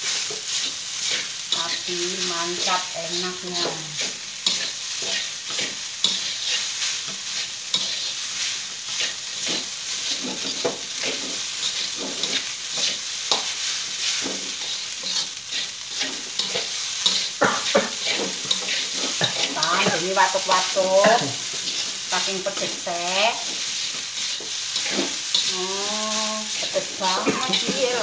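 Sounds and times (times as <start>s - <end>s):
rice sizzling in a wok: 0.0s - 28.0s
spatula scraping wok: 0.0s - 28.0s
spatula clacking against pan: 16.3s - 20.0s.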